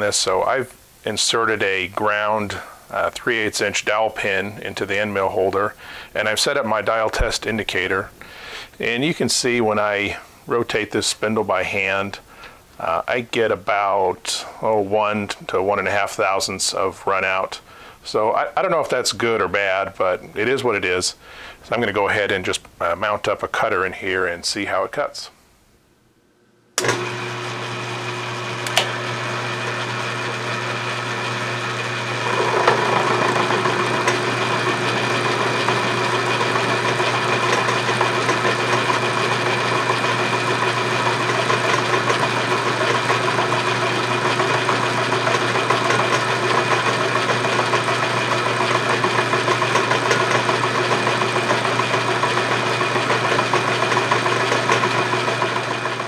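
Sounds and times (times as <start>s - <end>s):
end mill cutting metal: 26.8s - 56.0s
milling machine humming: 26.8s - 56.0s.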